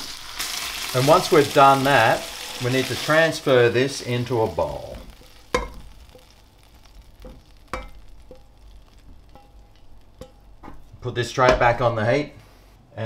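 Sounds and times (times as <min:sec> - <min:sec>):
faint sizzle: 0:00.0 - 0:13.0
spatula scraping frying pan: 0:05.0 - 0:11.0.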